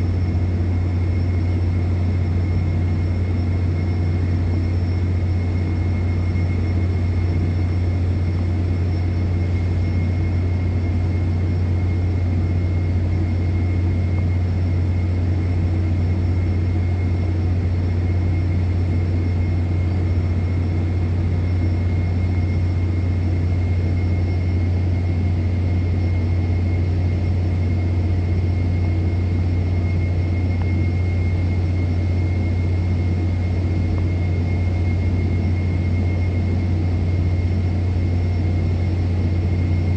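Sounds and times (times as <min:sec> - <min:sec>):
faint high whine: 0:00.0 - 0:39.9
low machinery drone: 0:00.0 - 0:39.9.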